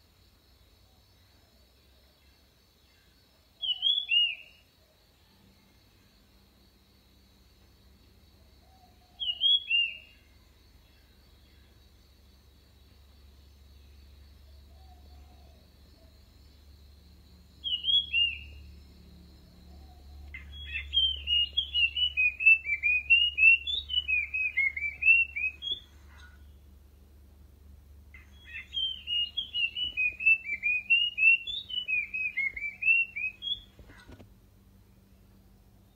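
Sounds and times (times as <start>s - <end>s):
bird call: 3.6s - 4.6s, 8.7s - 10.2s, 17.6s - 18.6s, 19.7s - 26.5s, 28.2s - 34.2s
bird singing whistled notes: 3.6s - 4.7s, 8.7s - 10.3s, 17.4s - 26.4s, 28.2s - 34.1s.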